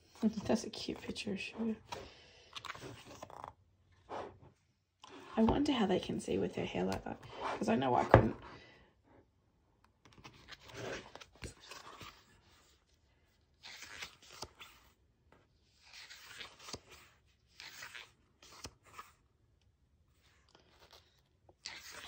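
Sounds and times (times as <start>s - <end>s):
book pages turning: 0.0s - 5.5s, 9.8s - 19.2s, 20.1s - 22.0s.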